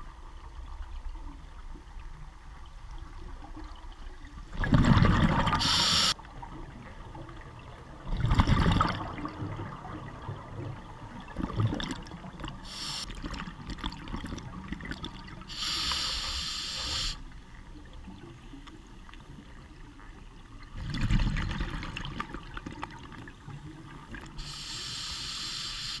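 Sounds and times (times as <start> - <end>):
hissing regulator inhalations: 5.6 - 6.2, 12.7 - 13.1, 15.5 - 17.2, 24.4 - 26.0.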